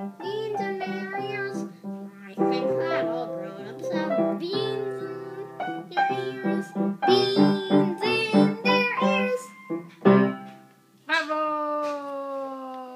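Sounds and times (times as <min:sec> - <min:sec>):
boy singing: 0:00.0 - 0:09.6
piano chords: 0:00.0 - 0:10.7.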